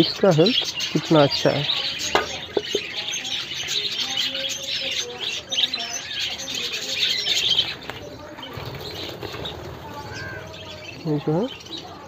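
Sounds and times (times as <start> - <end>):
budgerigars chattering: 0.0 - 12.0
wing fluttering: 6.6 - 11.9.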